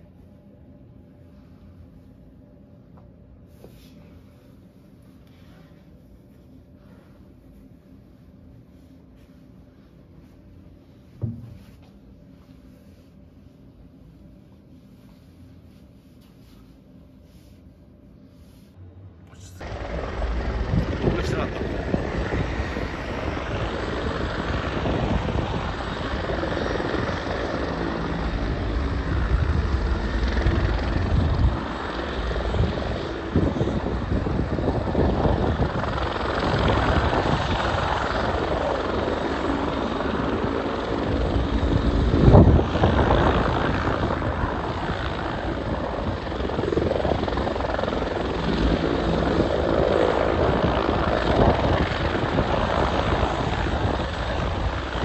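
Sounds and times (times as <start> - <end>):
car engine and road noise: 18.9 - 21.2.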